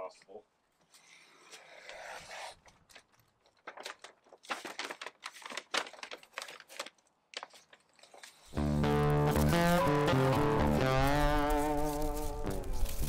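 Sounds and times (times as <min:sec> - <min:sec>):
backing peeled off vinyl film: 0:02.6 - 0:13.0.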